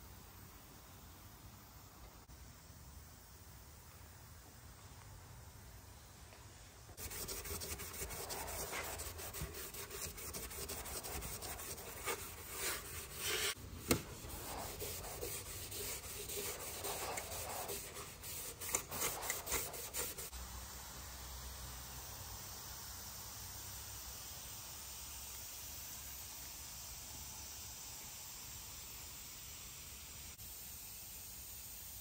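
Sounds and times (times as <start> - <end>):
scuff pad scrubbing metal: 7.0 - 20.3.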